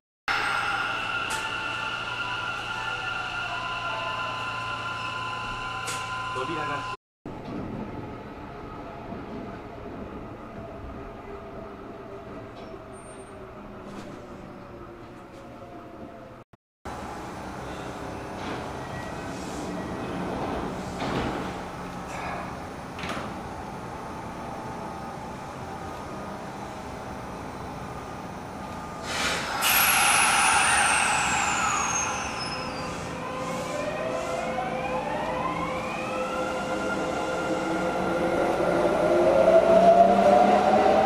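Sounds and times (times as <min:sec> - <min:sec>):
sudden hiss: 0:29.0 - 0:33.6.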